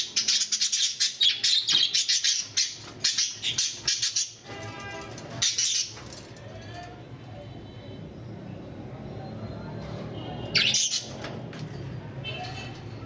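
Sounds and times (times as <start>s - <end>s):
budgerigars chirping and chattering: 0.0s - 4.4s, 5.4s - 6.2s, 10.6s - 11.2s.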